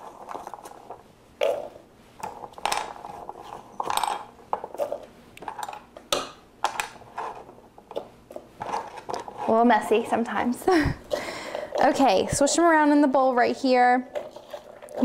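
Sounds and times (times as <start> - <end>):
asparagus rattling in plastic bowl: 11.6 - 12.6.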